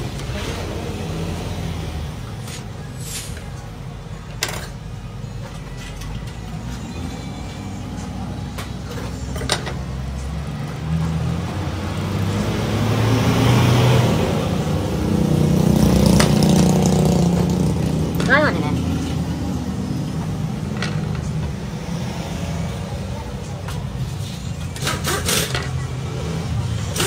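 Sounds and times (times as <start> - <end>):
vehicle engine rumbling: 0.0 - 27.0.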